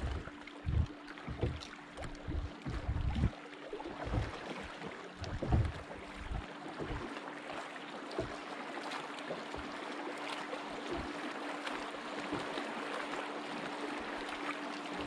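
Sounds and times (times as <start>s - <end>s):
low bumps: 0.0s - 3.3s, 4.0s - 4.3s, 5.2s - 7.0s
steady hum: 0.0s - 7.5s
water lapping against hull: 0.0s - 15.0s.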